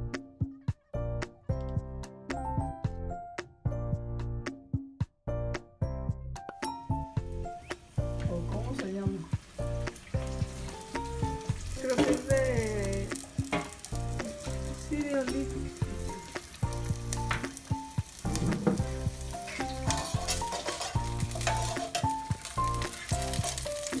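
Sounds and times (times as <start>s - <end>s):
music with bass: 0.0s - 4.6s, 5.3s - 9.0s, 9.6s - 24.0s
food sizzling in a pan: 6.7s - 24.0s.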